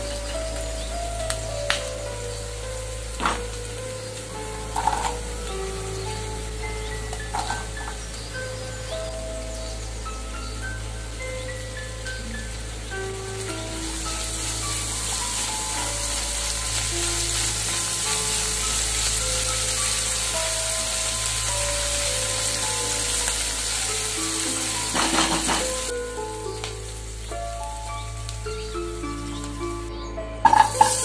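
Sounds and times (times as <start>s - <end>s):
vegetables sizzling in oil: 0.0s - 31.0s.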